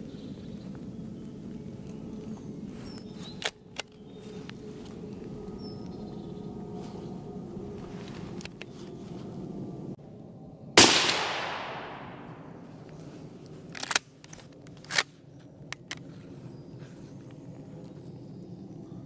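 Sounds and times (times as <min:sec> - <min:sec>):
rifle shot echoing: 0:10.8 - 0:12.7.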